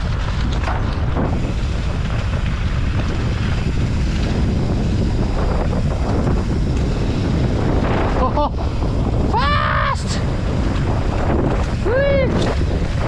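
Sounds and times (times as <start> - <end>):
bike rattling on dirt trail: 0.0 - 13.0
wind buffeting microphone: 0.0 - 13.0.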